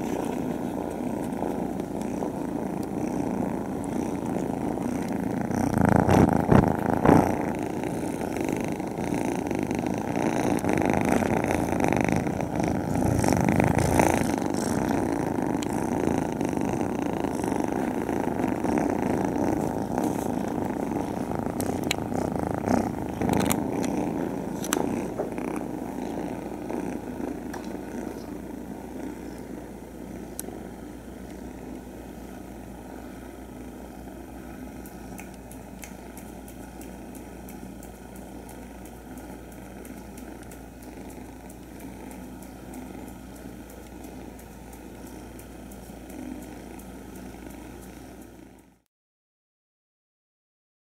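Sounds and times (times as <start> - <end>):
kittens purring: 0.0 - 48.9.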